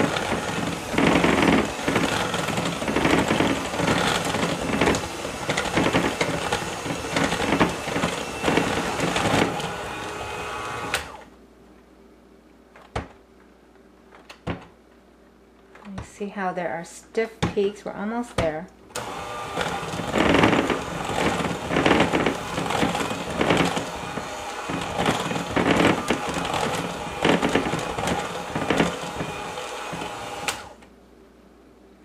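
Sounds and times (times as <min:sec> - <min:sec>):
electric hand mixer whipping: 0:00.0 - 0:11.3, 0:19.0 - 0:30.8.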